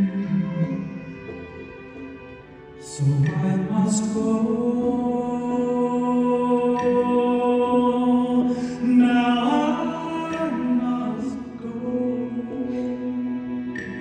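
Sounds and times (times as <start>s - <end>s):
man singing into a microphone: 2.8s - 14.0s.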